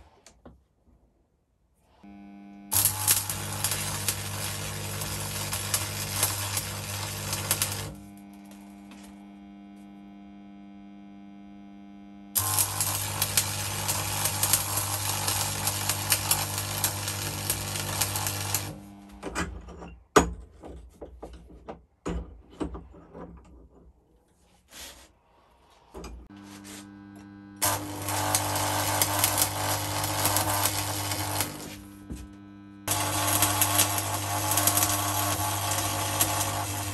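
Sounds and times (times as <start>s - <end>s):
welding arc crackling: 2.0s - 11.5s, 12.3s - 19.2s, 26.3s - 36.9s
steady hum: 26.3s - 36.9s.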